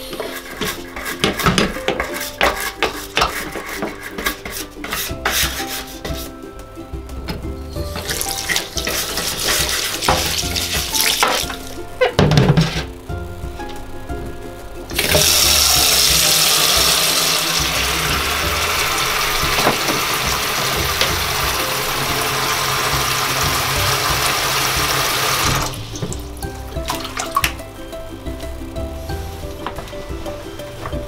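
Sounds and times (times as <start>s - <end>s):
tap water running into basin: 7.9s - 12.8s, 15.0s - 27.6s.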